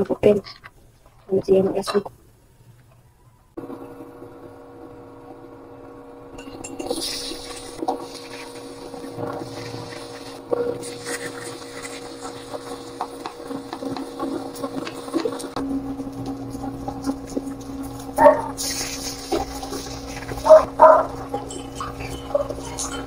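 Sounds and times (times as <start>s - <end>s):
oil sizzling in frying pan: 6.9s - 15.6s, 16.2s - 22.3s.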